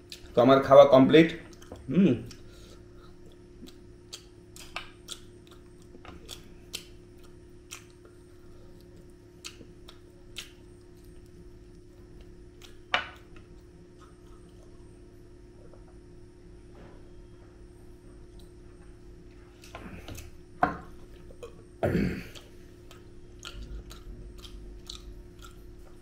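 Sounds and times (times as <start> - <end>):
steady low hum: 0.0 - 26.0
person chewing: 1.4 - 15.0, 19.4 - 26.0.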